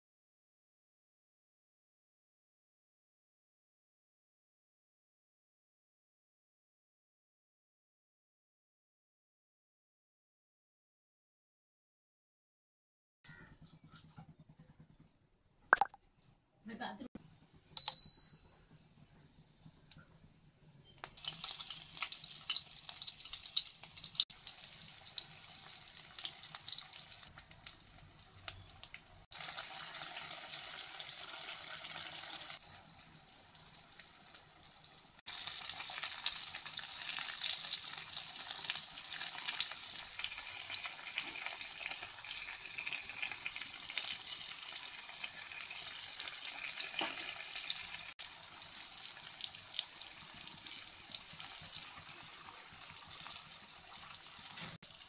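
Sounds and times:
vegetables sizzling in hot oil: 21.0 - 55.0.

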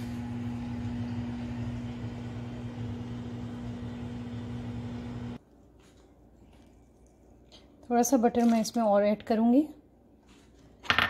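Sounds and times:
steady mechanical hum: 0.0 - 8.3.

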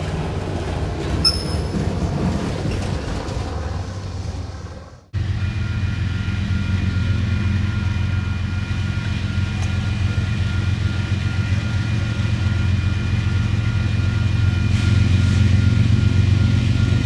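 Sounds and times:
diesel train rumble: 0.0 - 17.0
crossing warning bell ringing: 1.2 - 2.4, 5.2 - 17.0.

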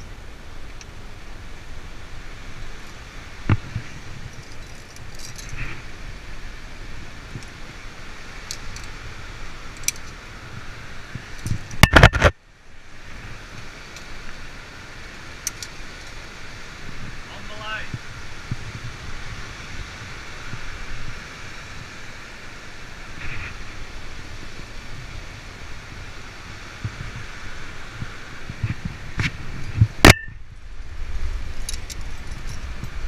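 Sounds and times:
metal carabiners jangling: 4.2 - 5.6, 31.5 - 33.0.

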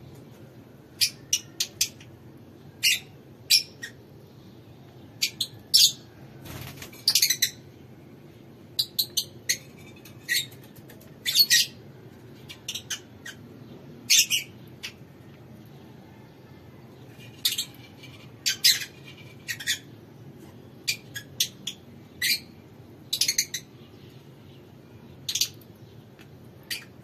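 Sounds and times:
lovebirds chirping shrilly: 17.3 - 20.0.

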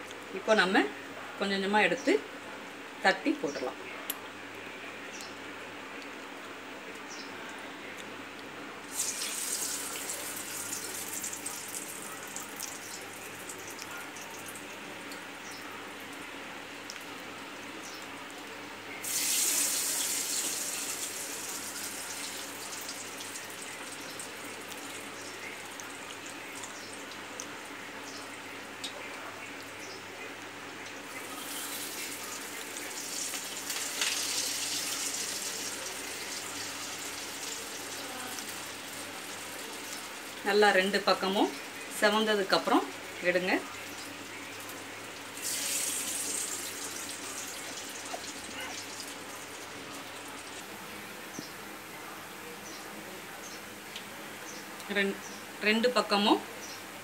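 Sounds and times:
food sizzling in hot oil: 8.9 - 15.2, 19.0 - 28.3, 30.9 - 40.6, 41.2 - 50.7.

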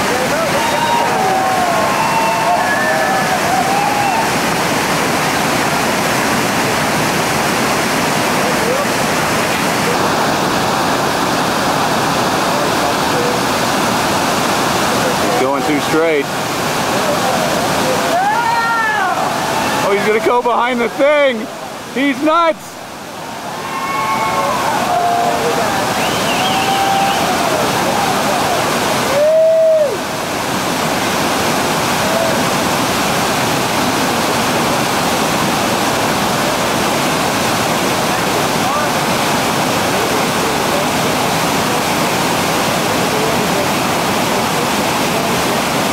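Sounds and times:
whitewater rapids roaring: 0.0 - 45.9.

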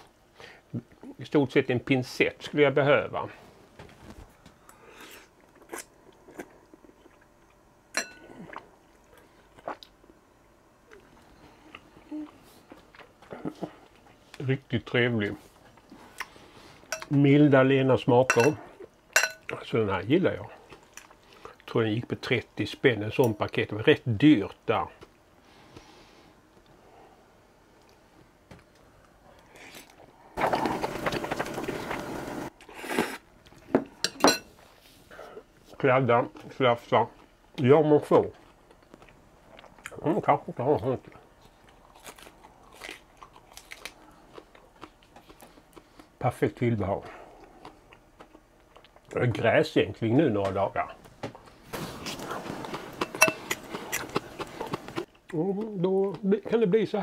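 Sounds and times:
person slurping and chewing noodles: 29.6 - 33.2, 51.8 - 55.1.

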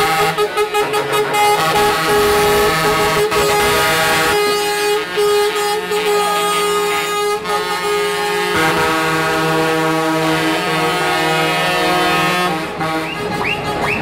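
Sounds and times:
truck air horns blasting: 0.0 - 14.0.

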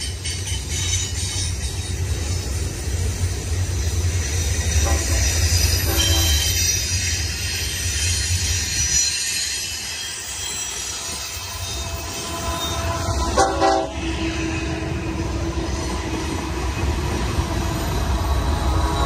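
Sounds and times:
diesel locomotives rumbling: 0.0 - 19.0
train rumble: 0.0 - 19.0
train wheels squealing: 0.0 - 19.0
locomotive horn blast: 4.8 - 6.6, 11.8 - 15.0.

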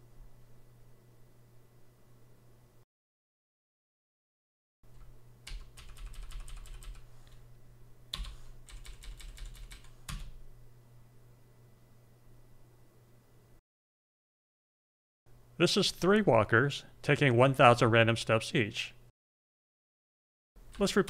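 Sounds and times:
keyboard keystrokes: 5.5 - 7.4, 8.2 - 10.4.

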